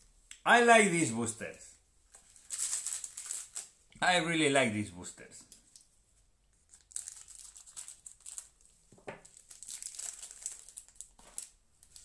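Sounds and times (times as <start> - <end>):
foil wrapper crinkling: 2.2 - 3.8, 6.7 - 12.0.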